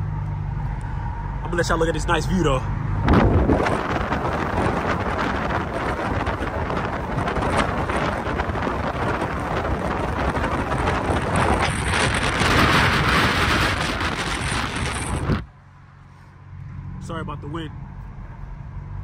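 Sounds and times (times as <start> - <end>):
wind buffeting microphone: 3.0 - 15.5.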